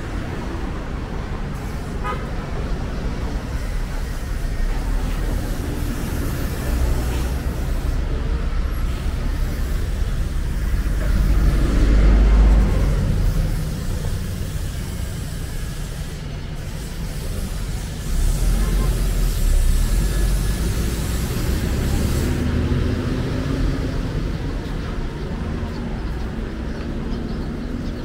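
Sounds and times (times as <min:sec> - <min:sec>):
motor vehicles running: 0:00.0 - 0:28.0
vehicle passing close: 0:04.6 - 0:15.7, 0:18.0 - 0:27.8.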